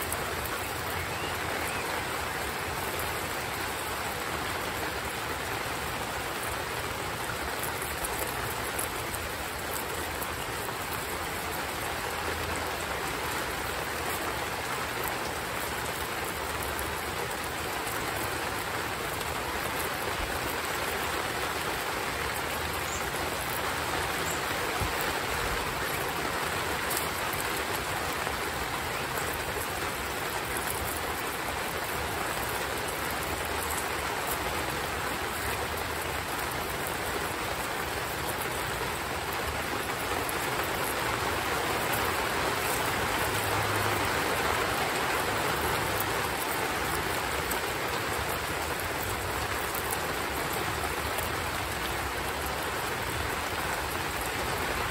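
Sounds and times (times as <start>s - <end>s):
heavy rain hissing: 0.0s - 54.9s.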